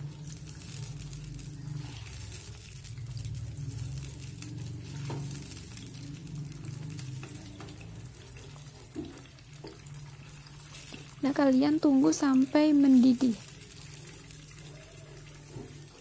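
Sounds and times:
low steady hum: 0.0 - 15.7
wooden spatula scraping a pan: 0.6 - 2.7, 3.7 - 5.7.

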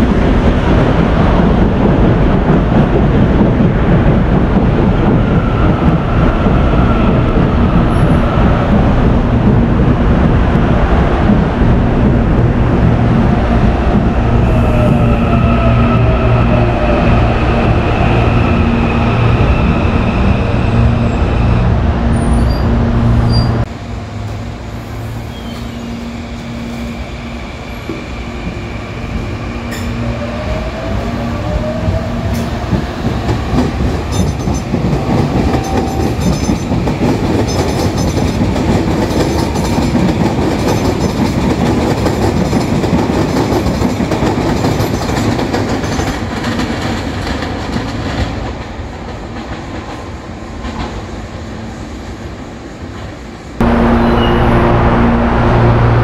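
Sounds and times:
train rumble: 0.0 - 56.0
train wheel clicks: 32.4 - 50.0
electric train whine: 49.4 - 56.0.

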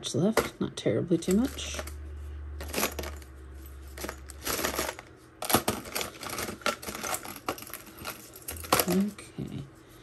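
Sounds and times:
jewelry clinking and clattering: 0.3 - 2.0, 2.6 - 9.2.

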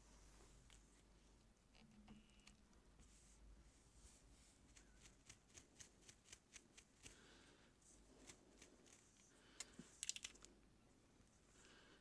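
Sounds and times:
comb ticking through hair: 4.7 - 7.4, 8.2 - 10.4.

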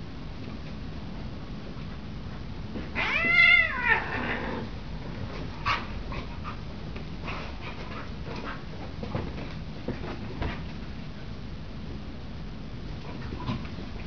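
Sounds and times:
cat yowling: 2.9 - 4.6.

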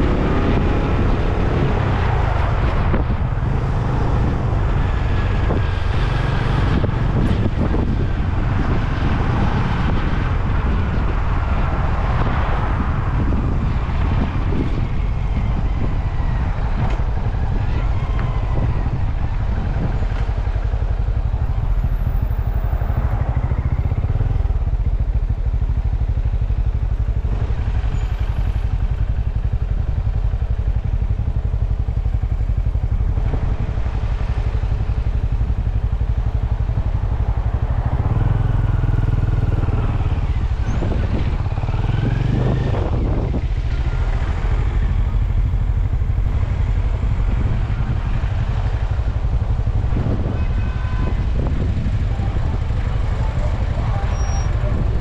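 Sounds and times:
motorcycle engine revving: 0.0 - 20.0, 31.6 - 55.0.

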